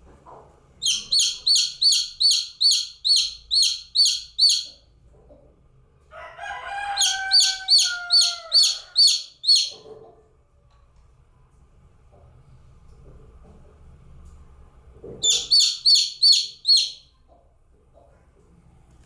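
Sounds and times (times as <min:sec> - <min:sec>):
chick peeping: 0:00.2 - 0:05.5, 0:06.7 - 0:10.2, 0:15.2 - 0:17.4.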